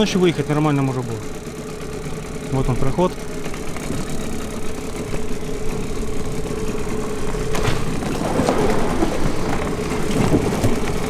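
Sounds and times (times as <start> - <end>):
outboard motor humming: 0.0 - 11.0
branches cracking and scraping boat: 3.3 - 11.0.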